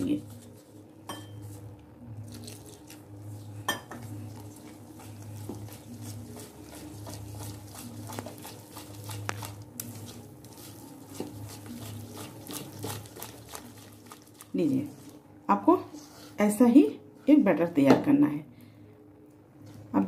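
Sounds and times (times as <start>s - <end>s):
batter squishing by hand: 0.0s - 15.3s.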